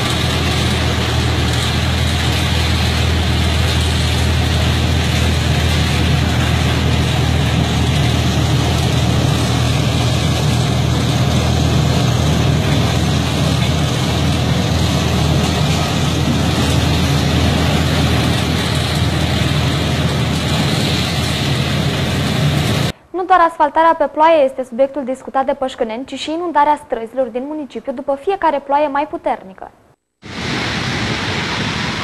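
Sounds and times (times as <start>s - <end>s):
road machinery engines running: 0.0s - 23.0s.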